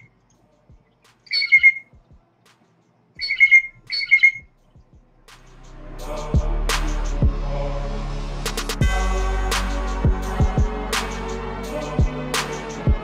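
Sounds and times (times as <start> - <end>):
blue jay harsh calls: 1.2 - 1.9, 3.2 - 4.4.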